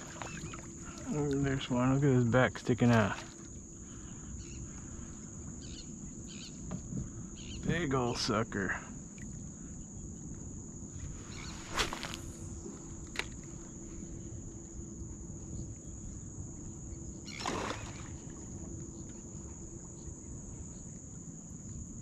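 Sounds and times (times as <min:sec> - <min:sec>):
insects droning: 0:00.0 - 0:22.0
water: 0:00.0 - 0:22.0
wind rumble: 0:09.4 - 0:17.3.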